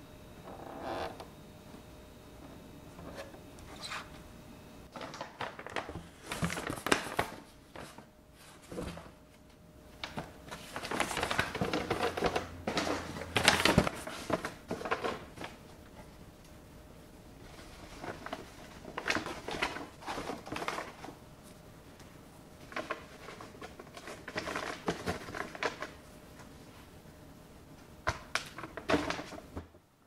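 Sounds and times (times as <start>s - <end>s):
paper bags rustling: 4.9s - 9.2s, 10.0s - 15.6s, 17.5s - 21.2s, 22.6s - 26.0s.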